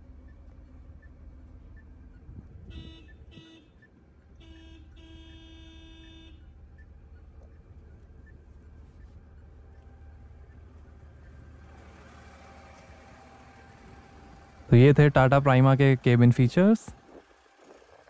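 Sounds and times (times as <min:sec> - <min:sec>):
diesel engine idling: 0:00.0 - 0:18.0
truck horn beeps: 0:02.6 - 0:06.6.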